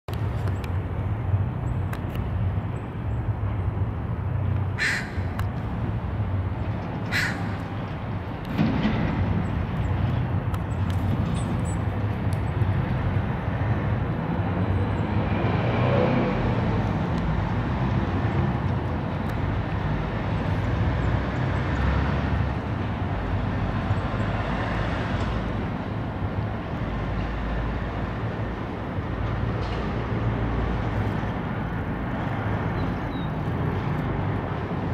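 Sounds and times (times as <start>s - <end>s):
low rumble of traffic: 0.1s - 34.9s
crow cawing: 4.8s - 5.4s, 7.1s - 7.6s.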